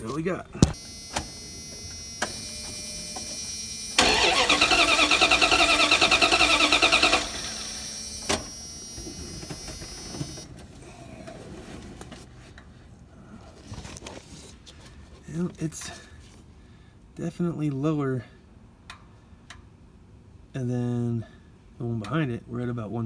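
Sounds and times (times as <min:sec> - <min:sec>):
engine cranking without firing: 0:04.0 - 0:07.8.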